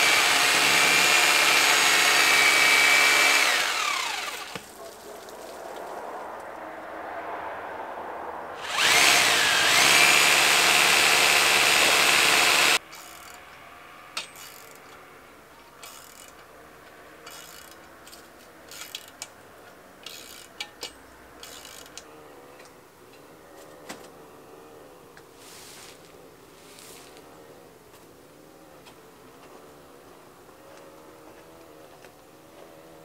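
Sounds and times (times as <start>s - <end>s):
power drill running: 0.0s - 4.6s, 8.6s - 12.8s.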